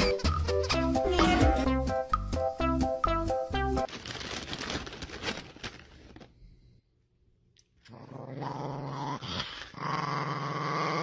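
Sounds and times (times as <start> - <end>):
small dog growling: 7.8 - 11.0.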